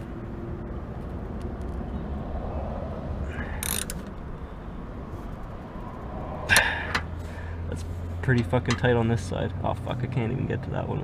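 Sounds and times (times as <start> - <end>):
socket ratchet clicking: 3.6 - 4.2.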